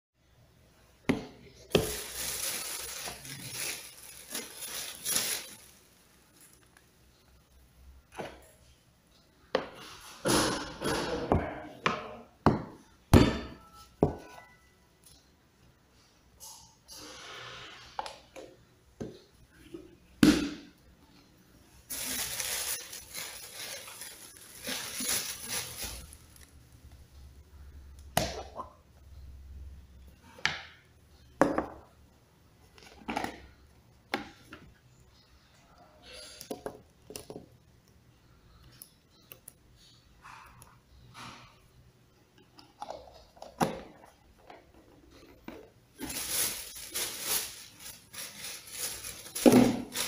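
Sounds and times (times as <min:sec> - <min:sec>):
rustling and handling noise: 0:01.1 - 0:10.3, 0:21.0 - 0:27.2, 0:42.2 - 0:50.0
plastic packaging crinkling: 0:01.7 - 0:06.9, 0:21.9 - 0:26.6, 0:45.1 - 0:50.0.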